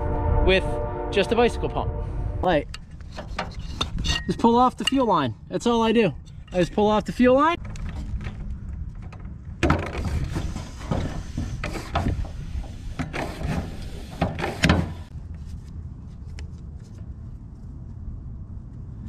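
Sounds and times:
low steady rumble: 0:00.0 - 0:14.0
bicycle pump strokes: 0:09.9 - 0:15.1.

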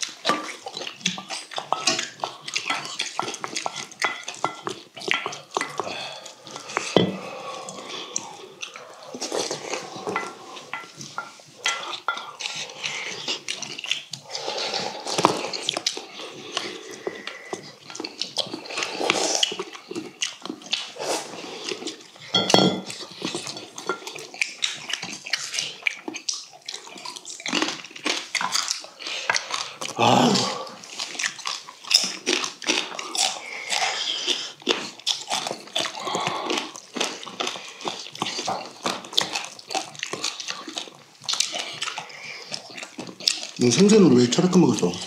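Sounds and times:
food chewing: 0:00.0 - 0:45.0
utensils clicking on steel bowls: 0:01.5 - 0:05.8
metal clinking on steel bowl: 0:02.7 - 0:05.4, 0:22.3 - 0:22.9.

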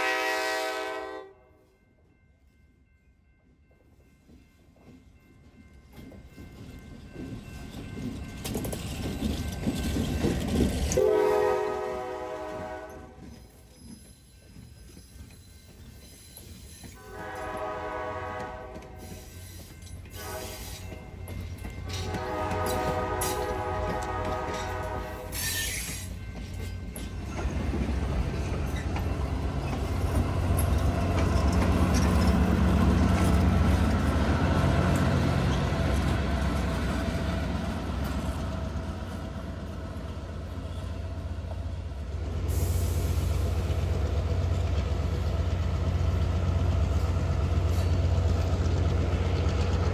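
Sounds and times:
locomotive air horn blasts: 0:00.0 - 0:01.6, 0:11.0 - 0:13.2, 0:17.0 - 0:19.1, 0:20.2 - 0:20.8, 0:22.0 - 0:25.7
passenger train passing: 0:00.0 - 0:49.9.

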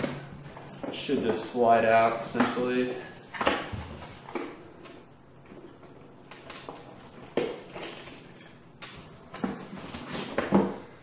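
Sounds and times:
cardboard rustling and scraping: 0:09.1 - 0:10.8.

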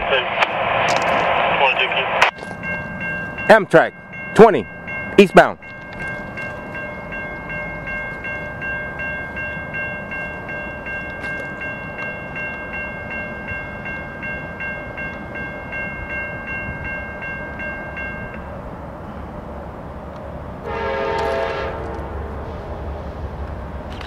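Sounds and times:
railroad crossing bell ringing: 0:01.6 - 0:19.6, 0:20.6 - 0:22.6.

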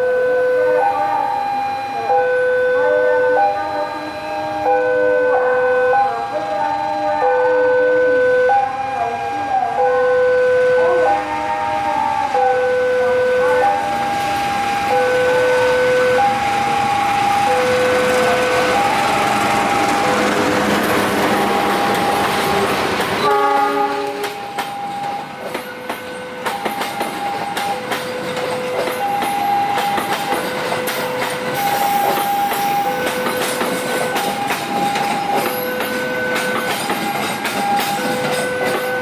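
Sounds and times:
train horn blast: 0:00.0 - 0:14.1, 0:14.8 - 0:24.5
diesel locomotive running: 0:00.0 - 0:39.0
two-tone electronic warning signal: 0:00.0 - 0:39.0
train wheels clacking over rail joints: 0:16.6 - 0:39.0.

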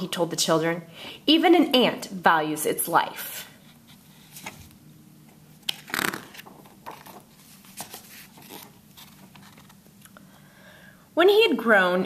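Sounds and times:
book pages turning: 0:03.9 - 0:10.1.

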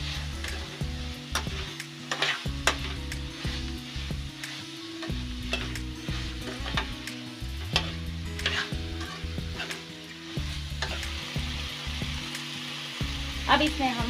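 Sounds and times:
metal spatula scraping pan: 0:00.0 - 0:11.2
food sizzling in a pan: 0:00.0 - 0:14.0.

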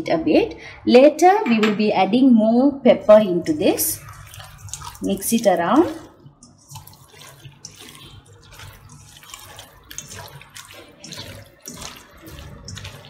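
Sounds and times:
wet squelching of meat mixed by hand: 0:03.4 - 0:13.0.

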